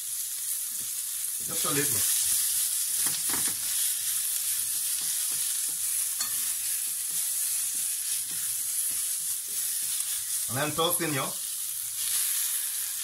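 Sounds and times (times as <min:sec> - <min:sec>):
onions sizzling in oil: 0:00.0 - 0:13.0
spatula scraping a pan: 0:01.4 - 0:10.5.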